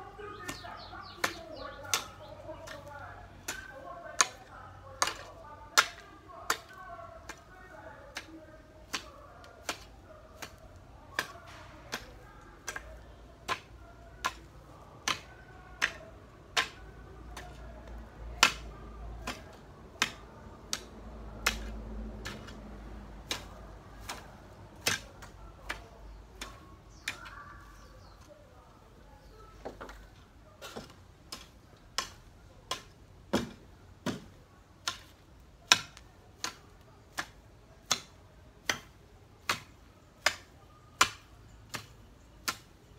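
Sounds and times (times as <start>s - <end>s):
garden hoe chopping into soil: 0.1s - 28.3s, 29.5s - 42.9s.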